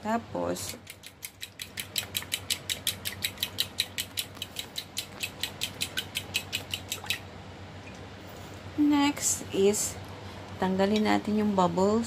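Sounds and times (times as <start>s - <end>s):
fork beating eggs in a bowl: 0.5s - 7.2s.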